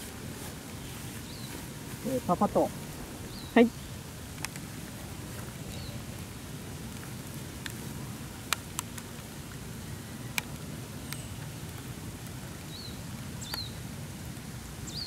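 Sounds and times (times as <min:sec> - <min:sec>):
light rain hiss: 0:00.0 - 0:15.0
raindrop ticks: 0:03.5 - 0:15.0.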